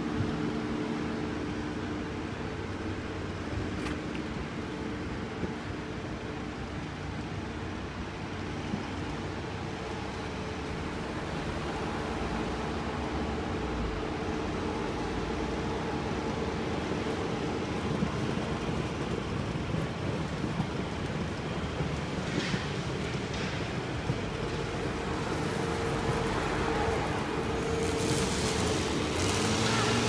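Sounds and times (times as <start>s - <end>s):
road traffic hum: 7.5s - 30.0s.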